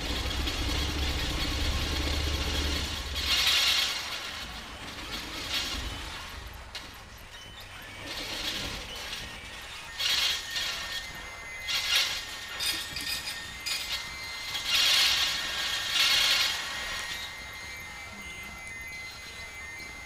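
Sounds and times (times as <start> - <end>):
sewing machine stitching: 0.0 - 6.6, 11.7 - 17.1.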